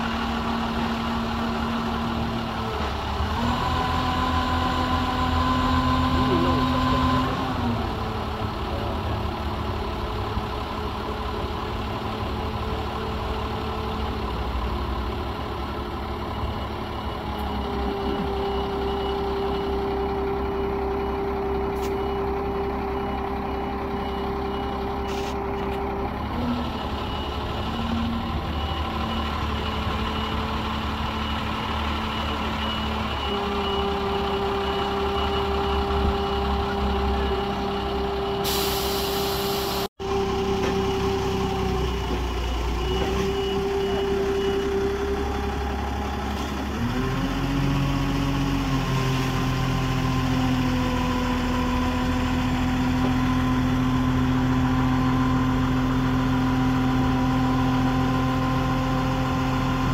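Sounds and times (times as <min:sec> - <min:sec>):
forklift engine running under load: 0:00.0 - 0:59.9
reversing alarm beeping: 0:16.1 - 0:25.8, 0:26.5 - 0:47.2.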